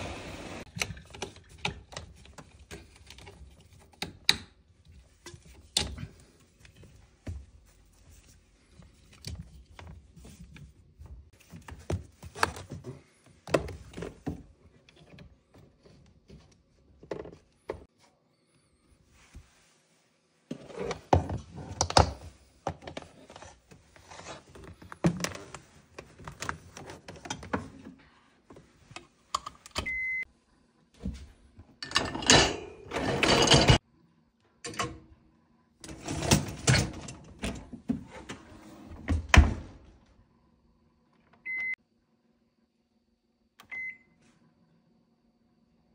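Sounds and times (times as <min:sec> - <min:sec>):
wire dish rack clattering: 0:31.9 - 0:33.8.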